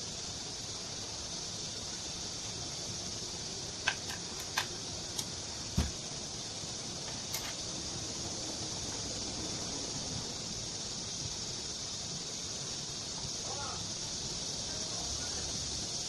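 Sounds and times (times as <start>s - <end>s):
steady hiss: 0.0s - 16.0s
metal clicks and knocks: 3.8s - 5.9s
dull thump: 5.7s - 6.1s.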